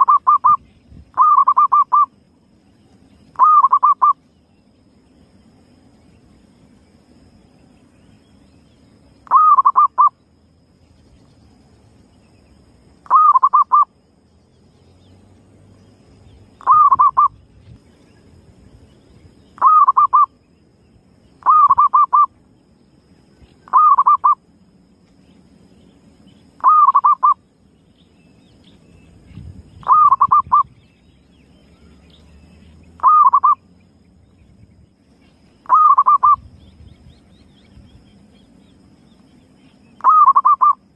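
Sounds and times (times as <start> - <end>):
dove cooing: 1.2 - 2.1, 3.3 - 4.2, 9.2 - 10.1, 13.0 - 13.9, 16.6 - 17.4, 19.6 - 20.3, 21.4 - 22.3, 23.6 - 24.4, 26.6 - 27.4, 29.8 - 30.7, 33.0 - 33.6, 35.6 - 36.5, 40.0 - 40.8.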